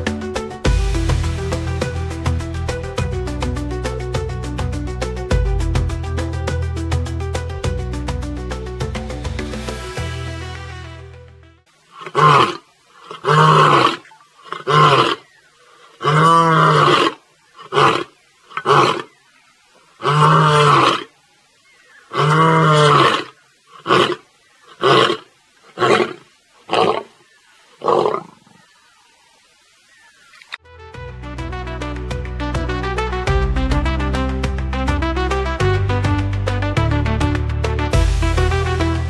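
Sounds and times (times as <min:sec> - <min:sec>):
lion grunts: 0:11.9 - 0:15.2
lion roaring: 0:12.0 - 0:15.2, 0:15.9 - 0:19.1, 0:20.0 - 0:21.1, 0:22.1 - 0:27.1.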